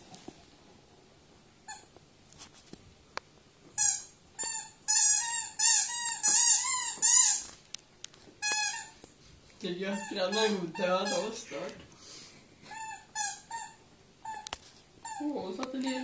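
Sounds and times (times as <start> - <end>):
squeaky dog toy squeaking: 3.8 - 7.5, 8.4 - 9.0, 9.8 - 11.6, 12.7 - 15.3.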